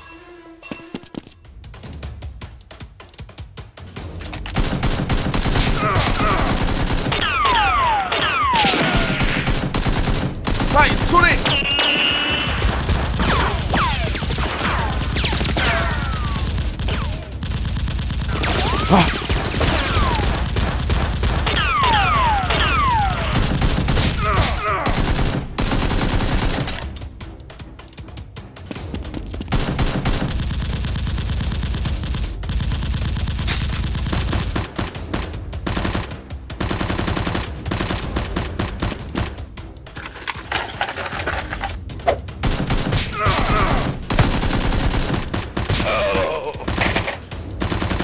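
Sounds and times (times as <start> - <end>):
background music: 0.0 - 48.0
automatic gunfire: 4.6 - 7.7, 8.4 - 26.8, 29.5 - 39.0, 42.4 - 48.0.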